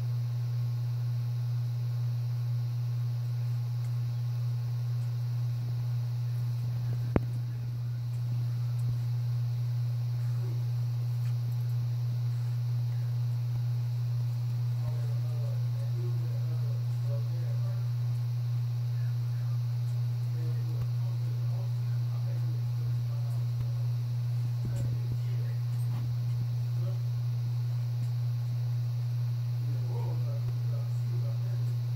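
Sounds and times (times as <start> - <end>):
steady low hum: 0.0 - 31.9
faint indistinct voices: 5.8 - 31.9.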